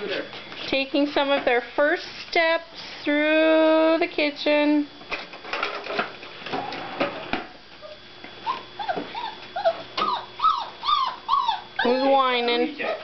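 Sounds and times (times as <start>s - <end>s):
puppy whining: 7.8s - 13.0s.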